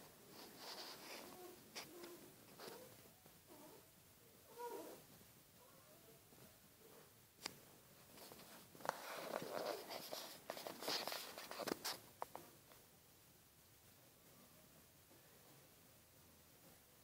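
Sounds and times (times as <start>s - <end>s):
soft rustling and scraping: 0.0s - 3.8s, 6.3s - 12.9s.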